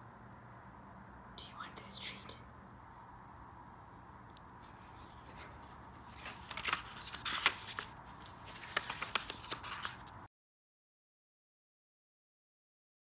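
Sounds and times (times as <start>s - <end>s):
book cover and paper rustling: 4.6s - 10.3s.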